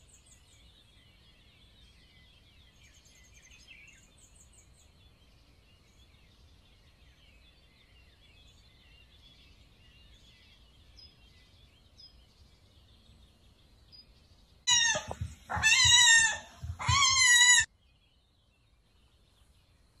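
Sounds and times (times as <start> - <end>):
kitten meowing: 14.7 - 17.7.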